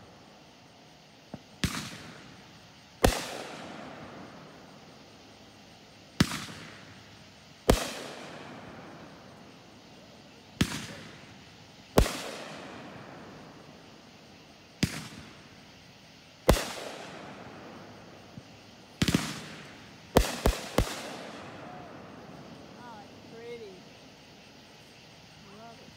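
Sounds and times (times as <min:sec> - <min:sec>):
fireworks bangs echoing: 0:01.3 - 0:04.9, 0:06.2 - 0:09.6, 0:10.6 - 0:13.8, 0:14.7 - 0:15.6, 0:16.4 - 0:23.7.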